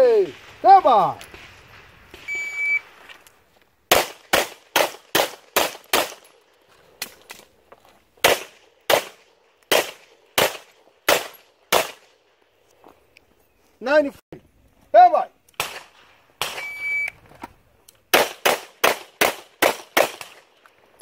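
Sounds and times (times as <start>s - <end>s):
pistol shots with echo: 3.9s - 6.3s, 8.2s - 12.0s, 18.1s - 20.5s.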